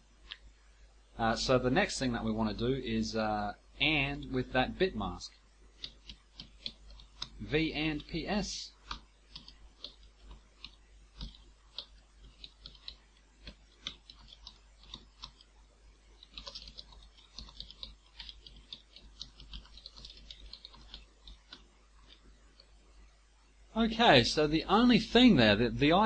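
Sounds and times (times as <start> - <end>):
faint keyboard typing: 5.3 - 22.8.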